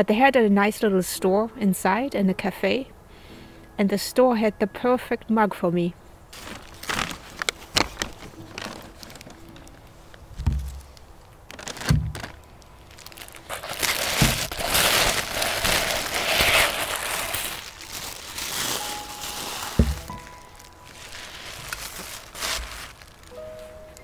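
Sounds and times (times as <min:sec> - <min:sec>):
paper rustling and crinkling: 0:06.3 - 0:23.8
soft thumps: 0:10.4 - 0:10.9, 0:19.8 - 0:20.4.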